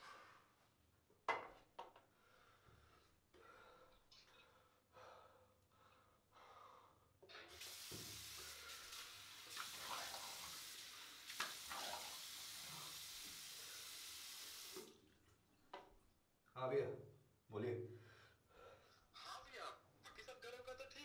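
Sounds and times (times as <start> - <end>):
tap running into a sink: 7.5 - 12.6
water splashes: 7.5 - 15.4.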